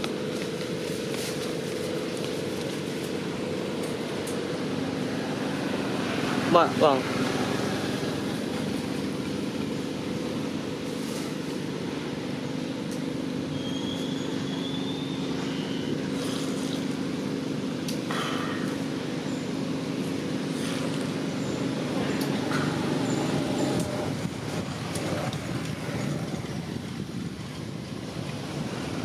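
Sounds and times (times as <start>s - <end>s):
engine humming: 0.0s - 29.0s.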